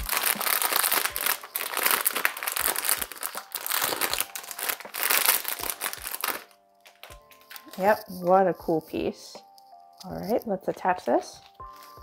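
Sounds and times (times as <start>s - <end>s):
foil bag crinkling: 0.0s - 9.0s, 10.2s - 12.0s.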